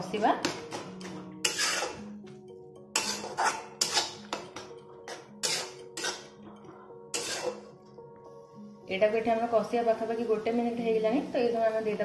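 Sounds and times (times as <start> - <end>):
background music held notes: 0.0 - 12.0
metal spatula scraping pan: 1.4 - 2.2, 2.9 - 7.7.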